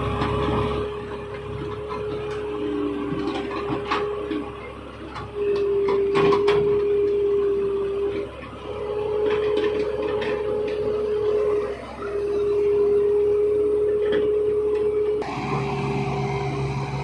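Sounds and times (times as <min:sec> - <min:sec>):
excavator engine and hydraulics: 0:00.0 - 0:17.0
high hydraulic whine: 0:05.3 - 0:17.0.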